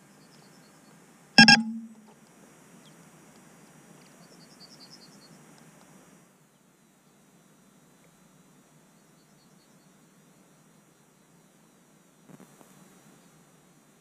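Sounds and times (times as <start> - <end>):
faint high chirps: 1.4 - 2.0
loud buzzy beep: 1.4 - 2.0
low hum: 1.4 - 2.0.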